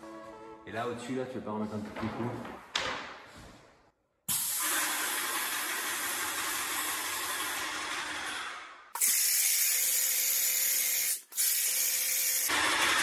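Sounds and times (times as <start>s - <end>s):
paint spray gun hissing: 9.0s - 12.5s.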